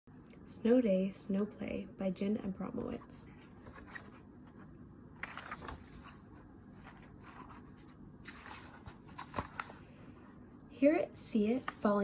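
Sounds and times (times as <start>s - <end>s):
book pages rustling: 2.8s - 10.2s, 11.4s - 12.0s.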